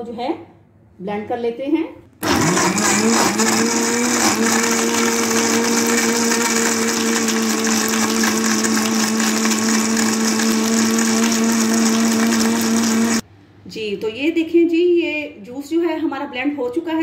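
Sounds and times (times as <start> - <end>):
blender motor whirring: 2.2 - 13.2.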